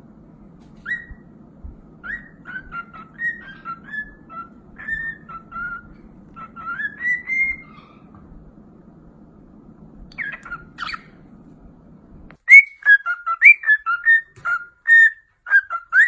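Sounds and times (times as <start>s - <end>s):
cockatiel whistling a tune: 0.8s - 1.3s, 2.0s - 8.2s, 10.1s - 11.1s, 12.4s - 16.0s.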